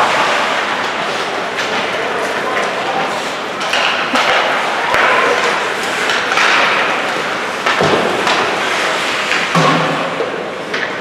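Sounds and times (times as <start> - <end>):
ice hockey game din: 0.0 - 11.0.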